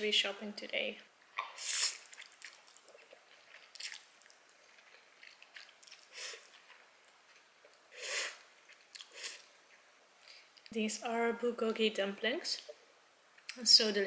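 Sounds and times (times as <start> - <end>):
soft chewing: 1.3 - 10.8
person slurping noodles: 1.5 - 2.3, 7.9 - 8.4.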